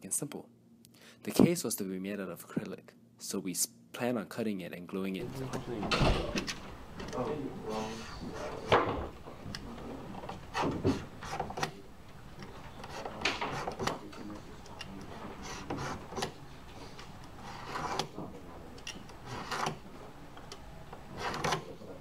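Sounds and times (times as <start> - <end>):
acrylic sheet being scored: 6.4 - 21.8.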